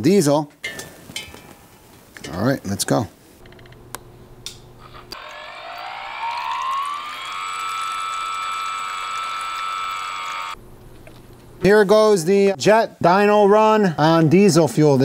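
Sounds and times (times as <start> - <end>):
small motor whining: 4.9 - 10.6
fuel streaming into beaker: 5.2 - 10.6.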